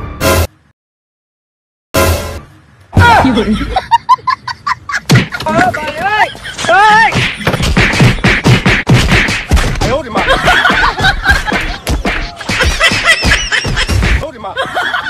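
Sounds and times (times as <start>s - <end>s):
people shouting and crying: 2.9s - 3.7s, 5.3s - 7.2s
slaps and thwacks: 5.1s - 5.7s, 7.0s - 14.2s.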